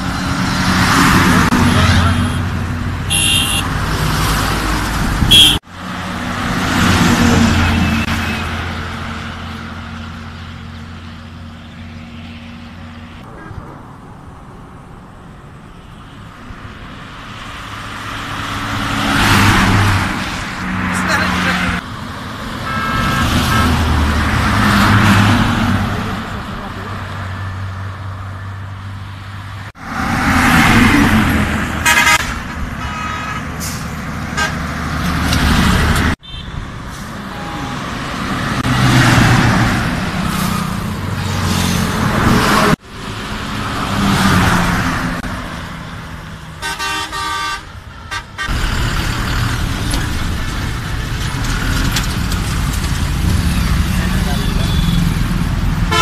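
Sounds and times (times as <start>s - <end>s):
buses and truck passing: 0.0s - 56.0s
bus horn blasts: 3.1s - 3.7s, 5.3s - 5.6s, 22.6s - 23.8s, 31.8s - 34.6s, 36.2s - 36.6s, 37.2s - 37.9s, 46.6s - 48.6s.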